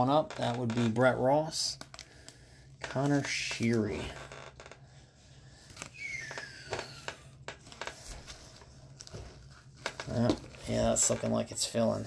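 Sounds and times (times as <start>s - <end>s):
plastic and card handling: 1.7s - 4.0s, 5.6s - 11.9s.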